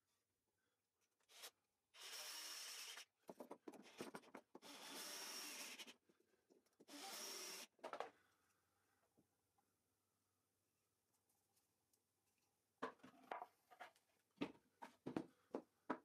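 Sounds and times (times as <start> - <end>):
cordless drill driving screws: 4.6 - 5.9, 6.9 - 7.7.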